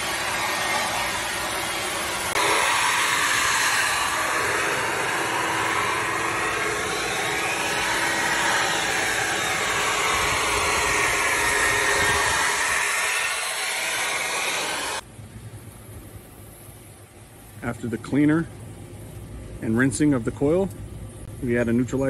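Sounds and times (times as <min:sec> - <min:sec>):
leaf blower running: 0:00.0 - 0:15.0.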